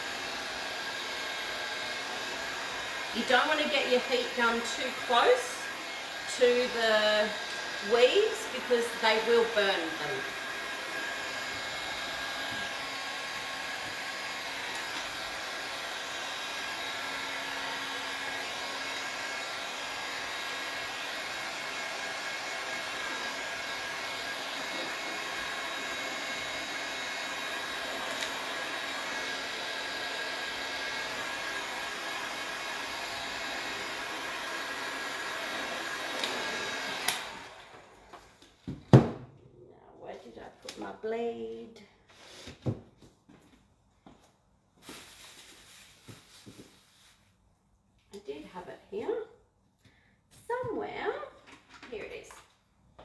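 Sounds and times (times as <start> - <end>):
heat gun blowing: 0.0 - 37.9.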